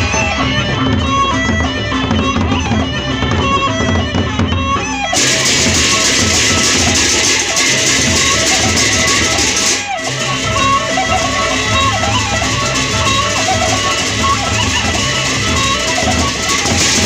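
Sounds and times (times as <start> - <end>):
bamboo flute melody: 0.0 - 17.0
large barrel drums beating: 0.0 - 17.0
small cymbals jingling: 5.2 - 17.0.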